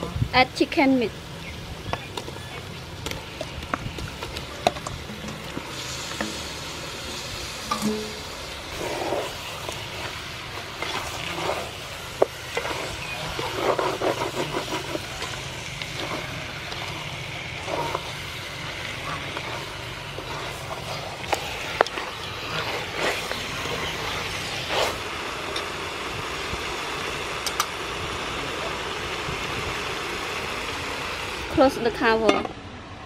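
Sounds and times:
chicken sizzling in a pot: 0.0 - 32.2
wooden spoon stirring: 8.7 - 25.0.

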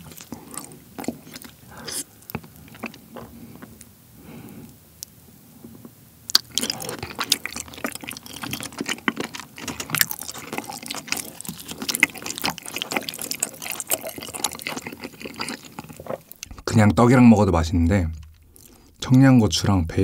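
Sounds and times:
wet chewing: 0.0 - 3.9, 6.3 - 17.0, 17.8 - 19.1
sticky wet squelches: 6.3 - 17.1.

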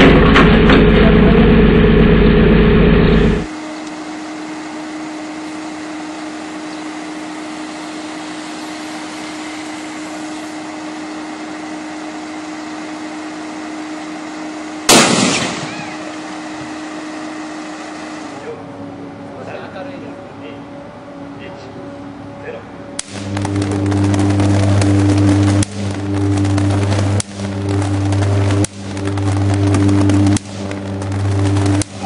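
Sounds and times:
loud steady rumble with hum: 0.0 - 32.0
short circuit bang: 14.9 - 16.4, 23.0 - 32.0
steady hiss: 23.0 - 32.0.

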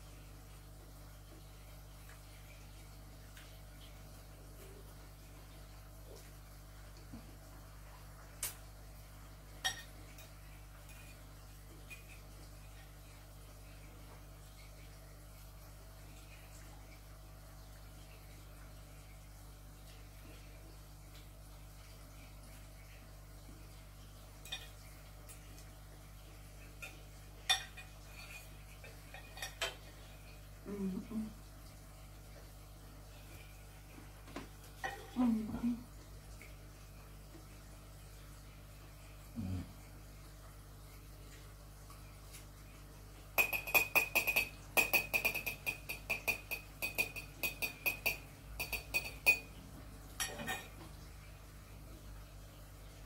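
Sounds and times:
fork clinking on ceramic plate: 43.4 - 49.5.

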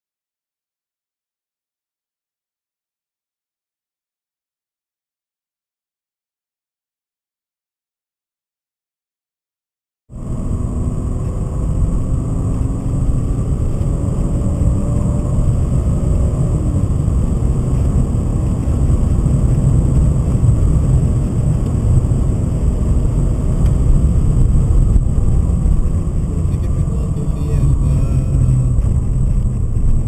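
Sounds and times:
car engine drone: 10.1 - 30.0
road rumble: 10.1 - 30.0.

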